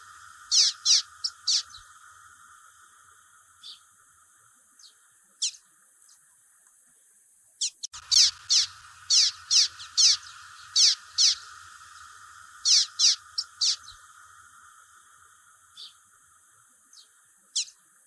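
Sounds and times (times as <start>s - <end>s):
bird calling: 0.0s - 2.4s, 3.6s - 3.9s, 7.6s - 16.2s, 16.9s - 17.9s
steady hiss: 0.0s - 18.0s.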